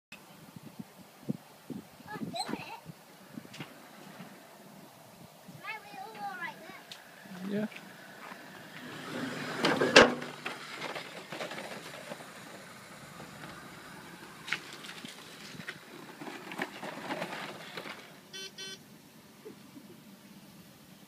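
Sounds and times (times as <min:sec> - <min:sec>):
mobility scooter rolling over concrete: 0:05.5 - 0:18.5
clattering thump: 0:09.6 - 0:12.3
short beeps: 0:18.3 - 0:18.8.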